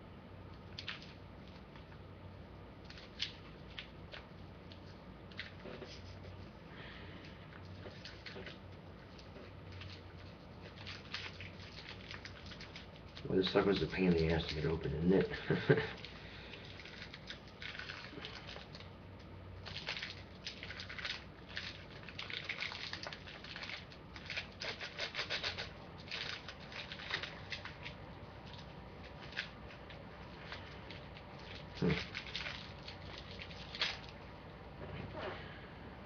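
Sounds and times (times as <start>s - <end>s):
plastic wrapper crinkling: 7.5s - 34.3s.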